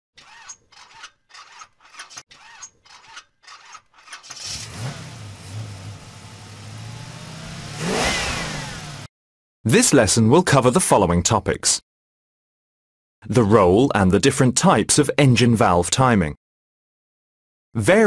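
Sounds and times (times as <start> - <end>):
car engine starter cranking: 4.0 - 9.0
car engine running hum: 4.5 - 9.1.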